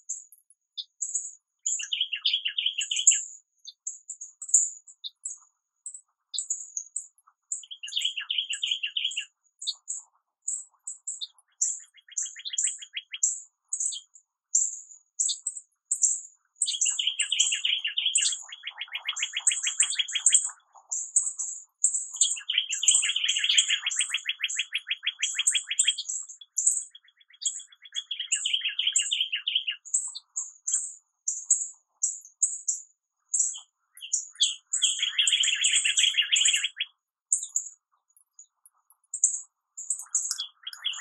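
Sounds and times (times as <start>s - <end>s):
songbirds chirping: 0.0s - 41.0s
bird trills: 7.6s - 10.0s, 11.1s - 14.1s, 16.0s - 32.7s, 33.3s - 38.5s, 39.1s - 41.0s.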